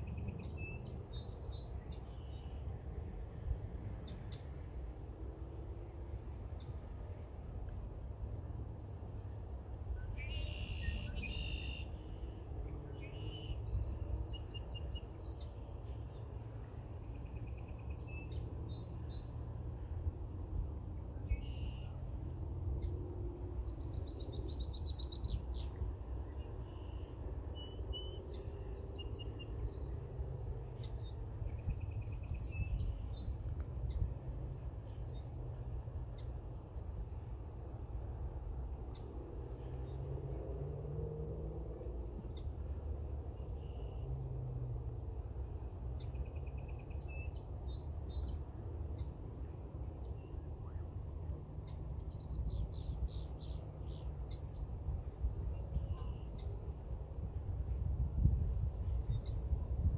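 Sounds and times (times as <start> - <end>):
songbirds whistling and trilling: 0.0 - 2.6, 10.0 - 12.0, 13.0 - 15.5, 17.1 - 19.3, 23.7 - 30.0, 30.8 - 34.0
insect chirping: 8.1 - 12.5, 13.1 - 37.9.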